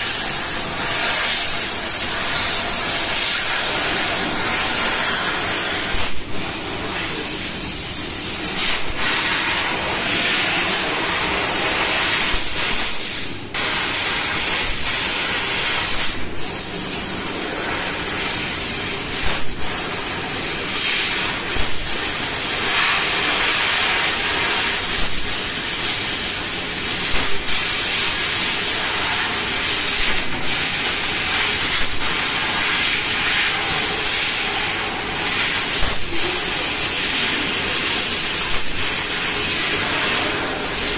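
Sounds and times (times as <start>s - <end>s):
laser cutter gas jet hissing: 0.0s - 40.9s.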